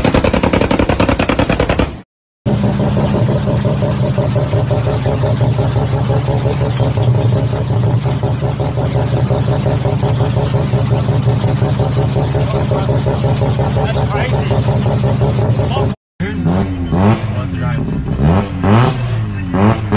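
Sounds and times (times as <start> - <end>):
rotary engine idling: 0.0 - 19.7.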